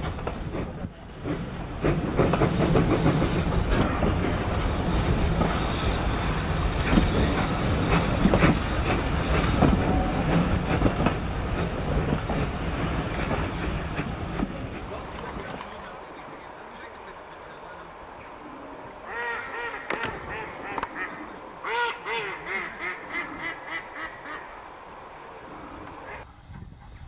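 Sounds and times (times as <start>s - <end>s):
wheels clattering over rail joints: 0.0s - 16.2s
train low rumble: 0.0s - 27.0s.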